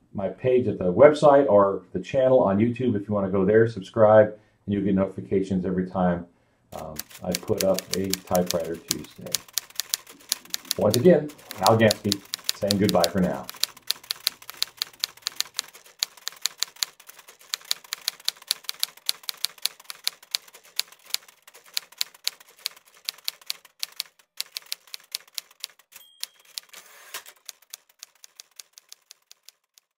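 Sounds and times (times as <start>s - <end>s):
typewriter bell ringing: 6.8s - 18.5s, 24.6s - 27.8s
typewriter typing: 6.8s - 29.9s.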